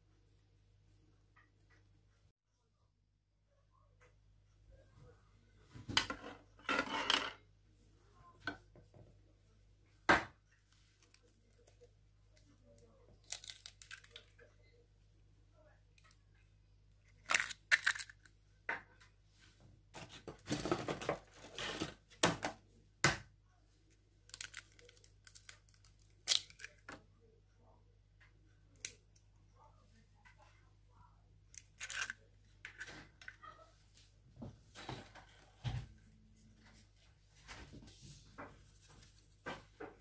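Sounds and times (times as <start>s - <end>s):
eggshell crackling apart: 13.2s - 14.2s, 17.2s - 18.3s, 24.3s - 26.8s.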